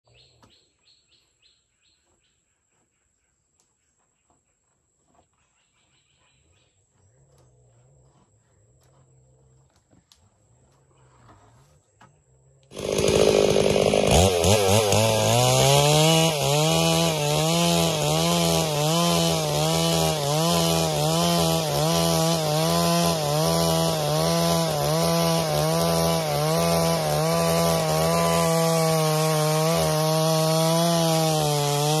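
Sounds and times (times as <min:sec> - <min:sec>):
chainsaw cutting a board: 0:12.7 - 0:32.0.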